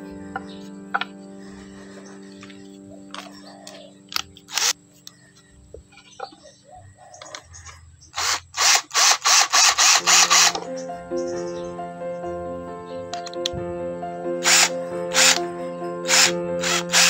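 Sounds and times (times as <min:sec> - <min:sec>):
background music: 0:00.0 - 0:05.7, 0:09.9 - 0:17.0
cordless drill driving screw: 0:04.1 - 0:04.8, 0:08.2 - 0:10.6, 0:14.4 - 0:15.4, 0:16.1 - 0:17.0.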